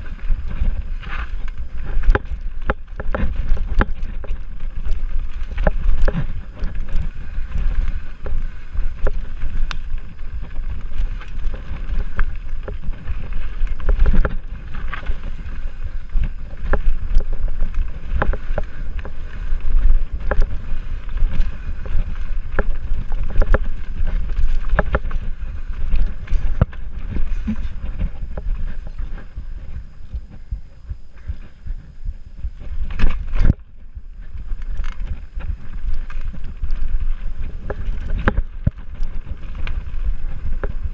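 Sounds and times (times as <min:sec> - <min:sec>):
bike knocking and rattling: 0:00.0 - 0:40.9
bike tyres rumbling: 0:00.0 - 0:40.9
wind buffeting microphone: 0:00.0 - 0:40.9.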